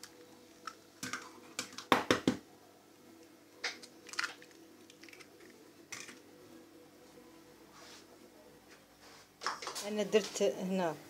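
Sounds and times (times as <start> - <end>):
egg knocking on plastic bowl: 1.7 - 2.4.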